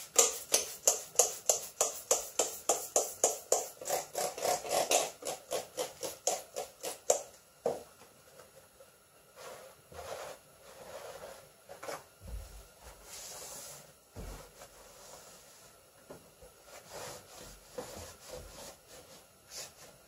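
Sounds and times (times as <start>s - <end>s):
cloth rubbing and wiping: 9.4s - 15.8s, 16.6s - 20.0s.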